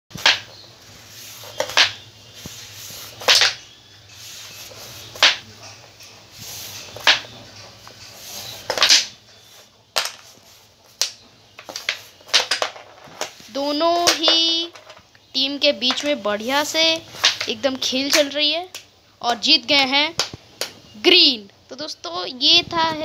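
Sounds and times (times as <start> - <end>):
plastic discs clacking: 0.1 - 0.6, 1.4 - 3.7, 4.8 - 5.8, 6.8 - 15.1, 15.8 - 18.4.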